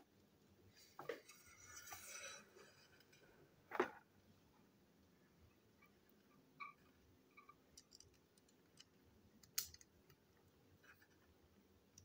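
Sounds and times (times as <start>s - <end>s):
plastic toy parts clicking: 7.8s - 10.2s.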